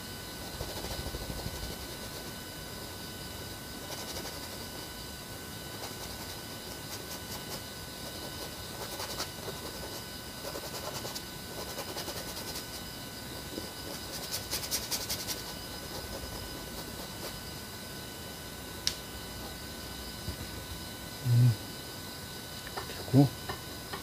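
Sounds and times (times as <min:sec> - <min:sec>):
faint electronic whine: 0:00.0 - 0:24.0
brush scratching on canvas: 0:00.4 - 0:02.4, 0:03.8 - 0:04.8, 0:05.7 - 0:17.4.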